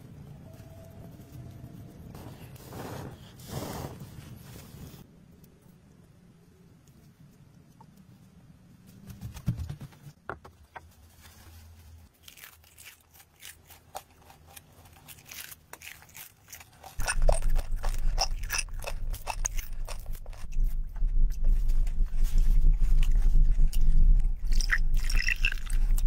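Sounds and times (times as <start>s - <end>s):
roasted food crunching: 12.1s - 20.7s
steady low rumble: 17.0s - 26.0s.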